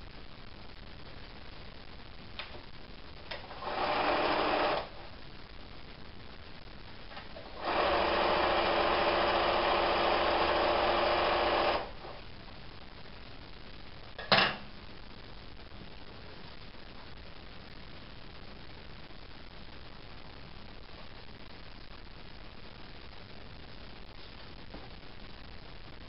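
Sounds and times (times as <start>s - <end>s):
sewing machine stitching: 3.5s - 4.9s, 7.6s - 12.0s.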